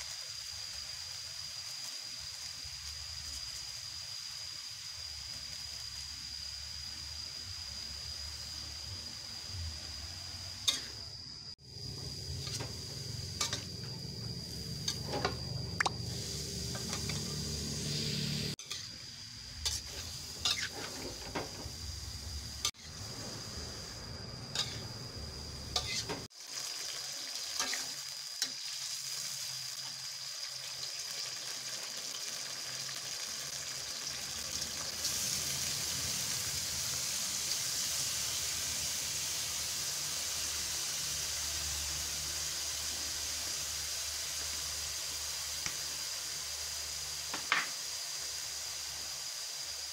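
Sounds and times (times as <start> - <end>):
stir-fry sizzling in wok: 0.0 - 49.9
spatula scraping metal pan: 19.6 - 21.3.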